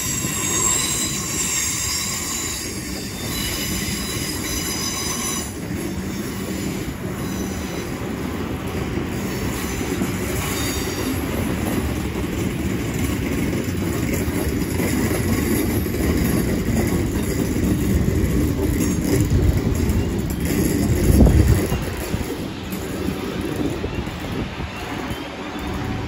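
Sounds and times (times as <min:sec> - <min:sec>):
high wheel squeal: 0:00.0 - 0:08.2, 0:09.1 - 0:11.8, 0:16.8 - 0:26.0
train wheels rumbling: 0:00.0 - 0:26.0.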